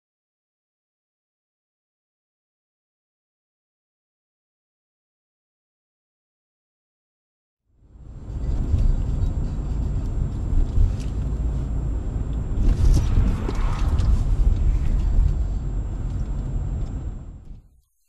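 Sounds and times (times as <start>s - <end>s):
car driving rumble: 7.8s - 17.7s
faint high whine: 7.8s - 18.0s.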